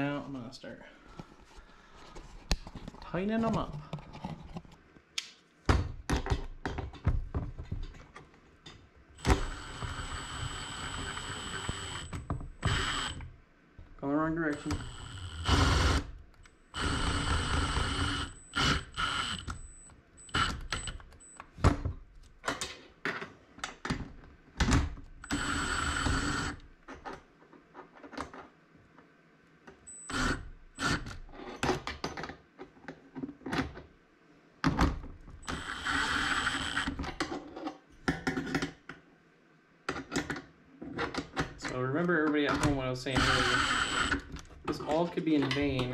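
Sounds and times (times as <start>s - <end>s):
impact driver tightening bolts: 14.5s - 16.1s, 20.3s - 21.2s.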